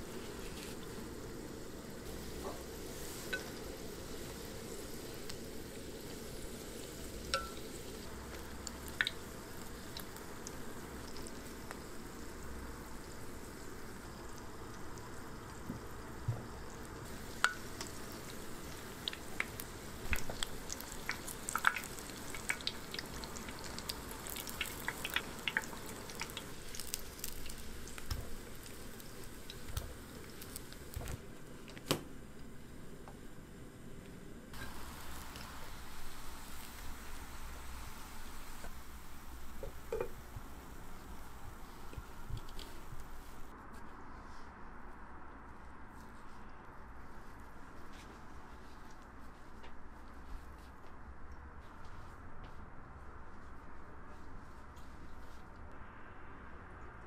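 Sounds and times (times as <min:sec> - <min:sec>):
food deep-frying in oil: 0:00.0 - 0:33.6, 0:34.5 - 0:43.5
oil popping and crackling: 0:02.0 - 0:32.5, 0:34.6 - 0:43.2.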